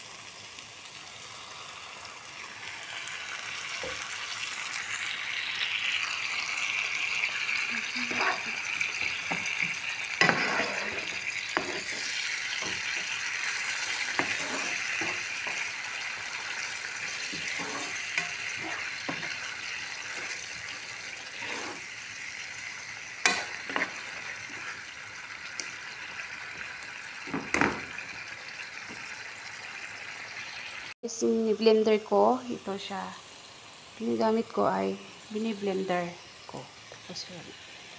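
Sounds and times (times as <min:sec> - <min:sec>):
sauce sizzling in a pan: 0:00.0 - 0:37.9
spoon scraping and knocking pan: 0:07.8 - 0:21.9, 0:23.2 - 0:24.9.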